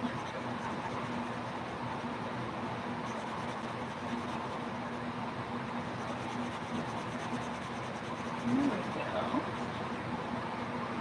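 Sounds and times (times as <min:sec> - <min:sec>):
marker scratching on paper: 0:00.0 - 0:02.2, 0:03.0 - 0:05.0, 0:05.8 - 0:10.0.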